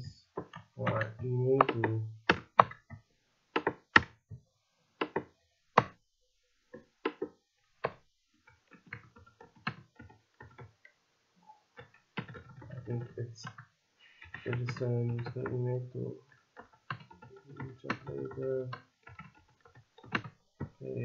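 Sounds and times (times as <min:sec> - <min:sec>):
computer keyboard keystrokes: 0:00.4 - 0:02.9, 0:03.6 - 0:04.1, 0:08.7 - 0:10.7, 0:11.8 - 0:21.0.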